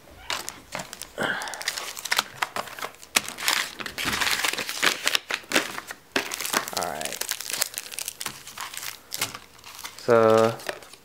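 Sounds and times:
plastic packaging crinkling: 0.2s - 11.0s.

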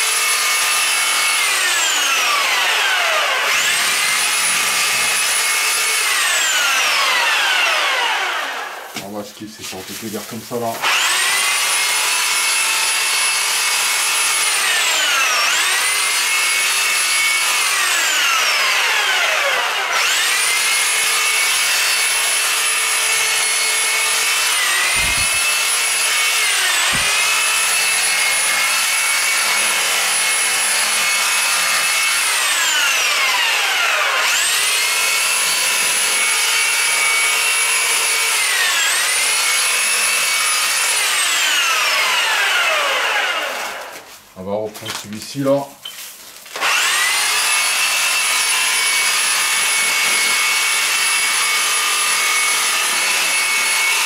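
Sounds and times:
reciprocating saw cutting wood: 0.0s - 44.0s, 46.5s - 54.0s.

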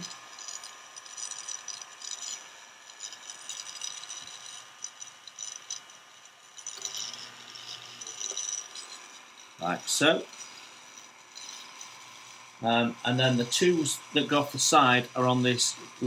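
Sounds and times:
drill bit scratching plastic: 0.0s - 16.0s
mini drill running: 0.0s - 16.0s.

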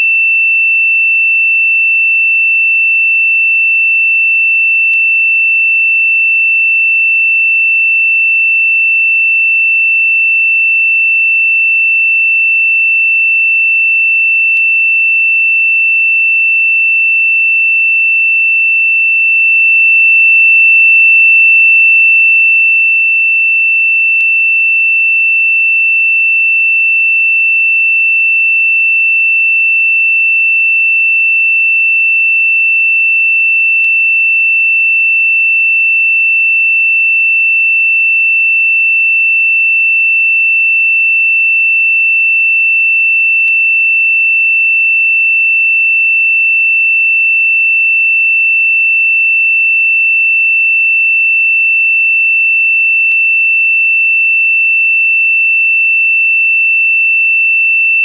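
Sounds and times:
high-pitched sine tone: 56.1s - 58.0s.

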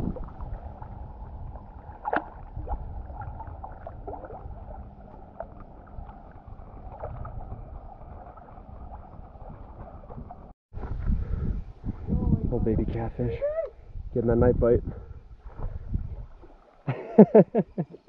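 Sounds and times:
water lapping and gurgling: 0.0s - 10.6s, 14.9s - 18.0s
steady low rumble: 0.0s - 13.2s
small sharp splashes and drips: 0.1s - 10.4s.

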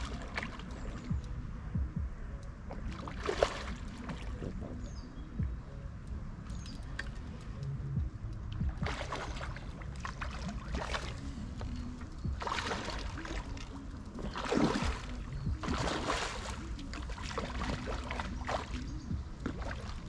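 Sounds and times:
fish splashing in water: 0.0s - 1.2s, 2.8s - 4.5s, 8.8s - 20.0s.

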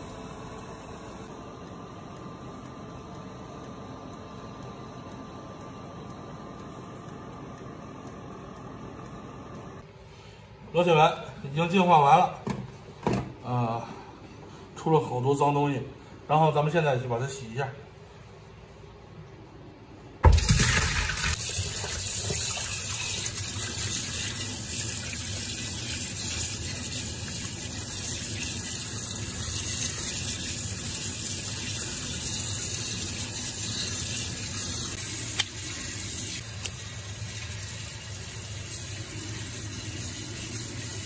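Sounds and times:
tap water running into sink: 20.2s - 41.0s.

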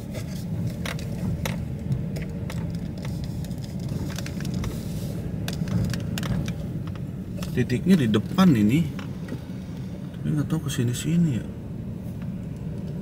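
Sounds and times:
car engine humming: 0.0s - 13.0s
tyres on block-paved road: 0.0s - 13.0s
light clicks and rattles: 5.4s - 9.8s.

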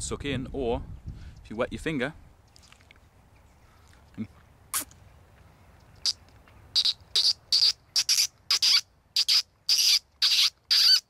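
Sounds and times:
short high squeaks: 6.8s - 11.0s.

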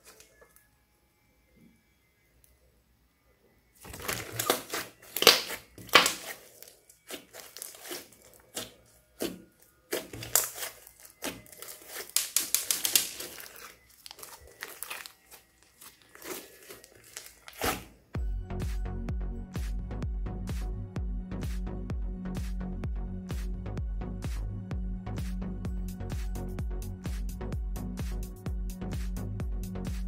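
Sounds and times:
slime crackling and clicking: 3.9s - 6.4s, 9.9s - 17.8s.

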